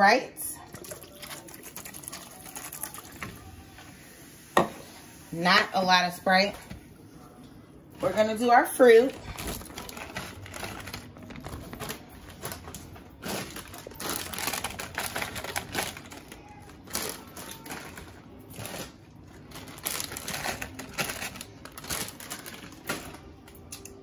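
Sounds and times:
plastic bag rustling: 0:08.0 - 0:23.5
frozen fruit clattering into strainer: 0:09.1 - 0:23.3.

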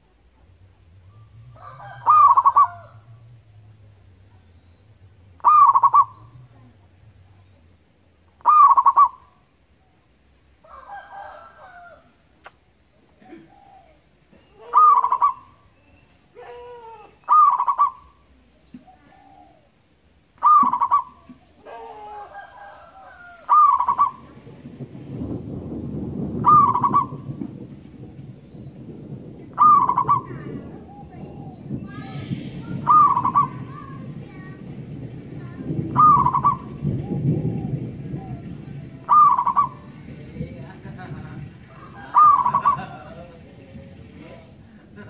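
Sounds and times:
low rumbling noise: 0:00.0 - 0:45.0
dove cooing: 0:01.1 - 0:03.2, 0:05.4 - 0:06.5, 0:08.4 - 0:09.4, 0:13.1 - 0:15.8, 0:16.4 - 0:19.8, 0:20.4 - 0:24.6, 0:26.0 - 0:34.6, 0:35.4 - 0:44.5.

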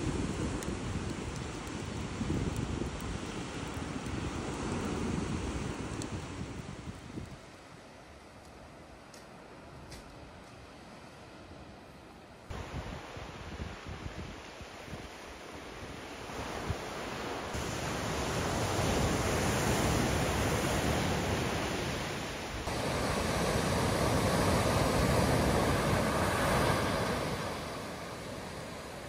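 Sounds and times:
surf washing up gravel beach: 0:00.0 - 0:08.1, 0:12.5 - 0:29.0.

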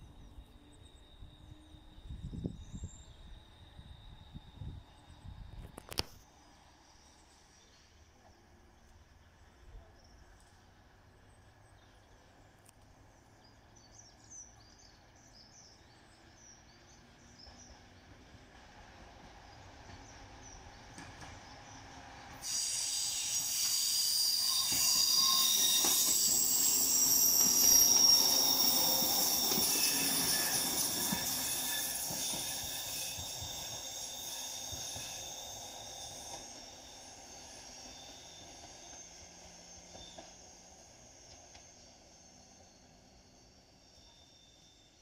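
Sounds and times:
electric train passing: 0:00.0 - 0:09.5, 0:14.5 - 0:45.0
high-pitched wheel squealing: 0:22.4 - 0:45.0.

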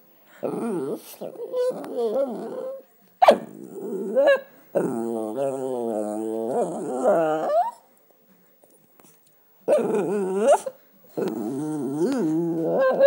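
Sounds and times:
small dog moaning: 0:00.4 - 0:02.8, 0:03.5 - 0:07.8, 0:09.7 - 0:13.0.

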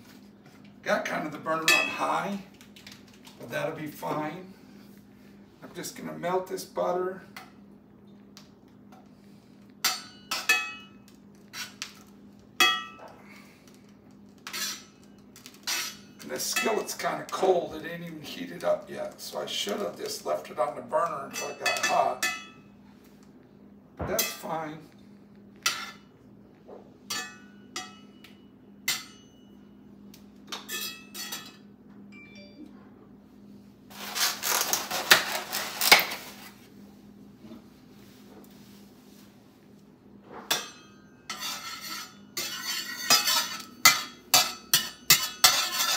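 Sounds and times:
steady low hum: 0:00.0 - 0:45.9
metal spatula clinking on skillet: 0:40.5 - 0:45.9.

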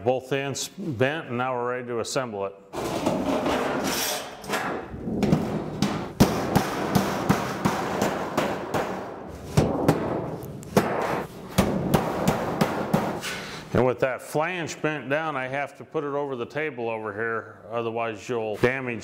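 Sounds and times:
sheet metal clattering: 0:02.8 - 0:13.3
hammer blows on sheet metal: 0:04.6 - 0:13.5.

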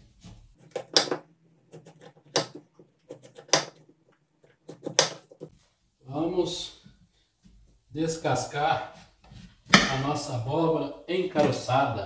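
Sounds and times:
knife cutting squash: 0:00.6 - 0:03.9.

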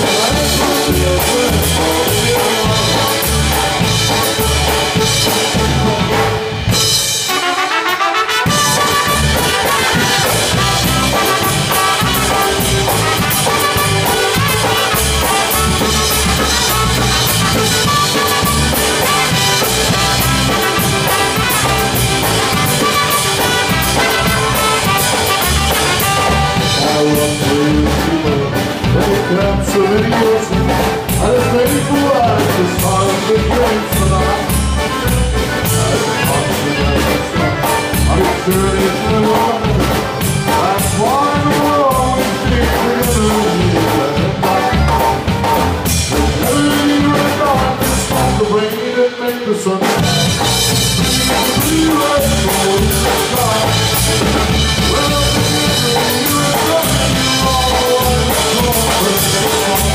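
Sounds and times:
trumpet and trombone horn passage: 0:00.0 - 0:30.8
man singing: 0:00.0 - 0:59.9
polka band playing: 0:00.0 - 0:59.9.

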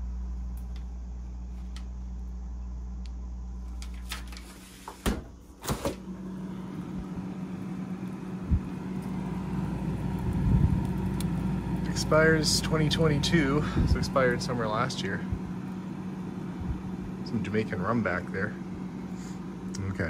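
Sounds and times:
refrigerator hum: 0:00.0 - 0:20.0.

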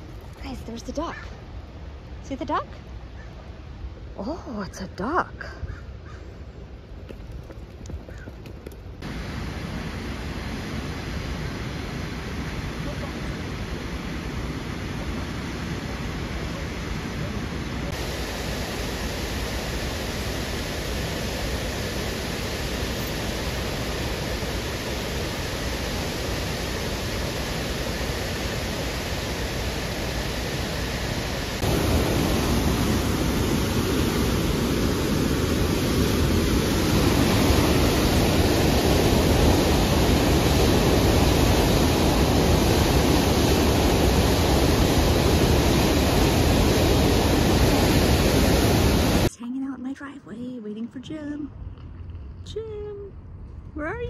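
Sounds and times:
whitewater rushing through spillway: 0:09.0 - 0:49.3.

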